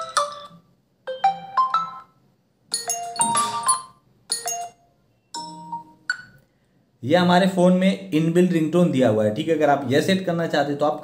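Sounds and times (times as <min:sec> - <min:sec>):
phone ringtone melodies: 0:00.0 - 0:06.4.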